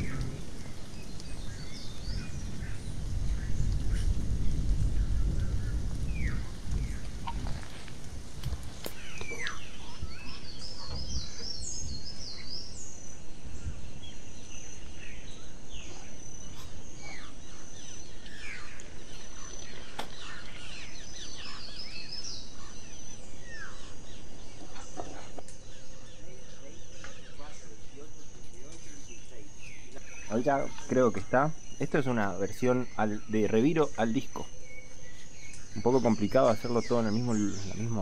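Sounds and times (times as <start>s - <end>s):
birds whistling and trilling: 0.0s - 7.9s, 8.5s - 38.0s
low rumble: 0.0s - 12.1s
high insect tone: 0.0s - 38.0s.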